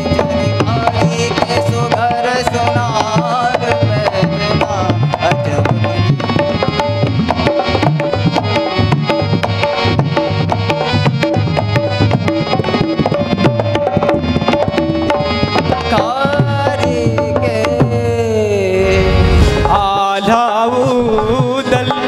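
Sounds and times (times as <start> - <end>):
person singing: 0.0 - 6.6, 15.8 - 22.0
harmonium melody: 0.0 - 22.0
tabla and dholak drumming: 0.0 - 22.0.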